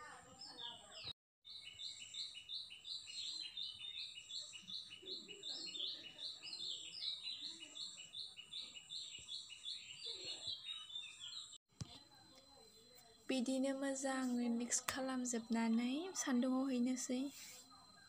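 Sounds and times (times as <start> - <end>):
birds chirping: 0.0 - 11.6.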